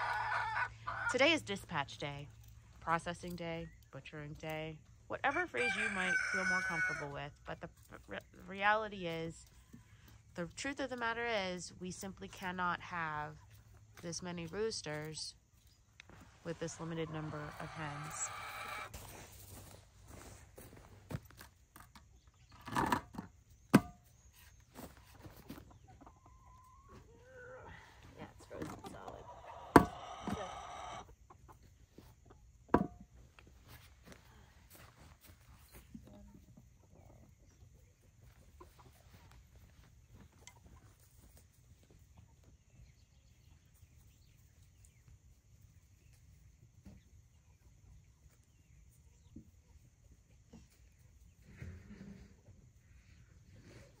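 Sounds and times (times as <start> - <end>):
hens calling: 0.0 - 1.5, 5.1 - 10.2, 16.0 - 19.3, 25.5 - 32.4
hens pecking: 13.4 - 54.0.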